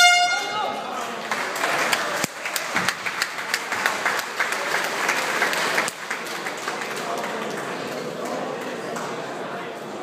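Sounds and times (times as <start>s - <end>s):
crowd applauding: 0.6s - 9.4s.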